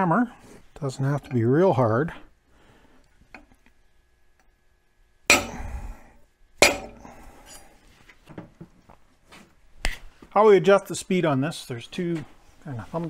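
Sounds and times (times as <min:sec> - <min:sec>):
hammer striking steel punch: 0:05.3 - 0:07.2.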